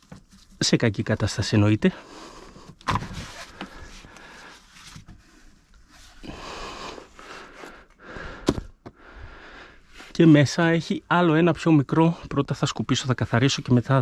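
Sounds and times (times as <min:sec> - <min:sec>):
air filter rustling and scraping: 0:02.6 - 0:06.2.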